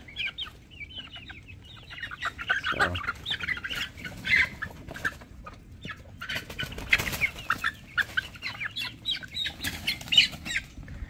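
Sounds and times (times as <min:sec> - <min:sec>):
chickens clucking and calling: 0:00.0 - 0:11.0.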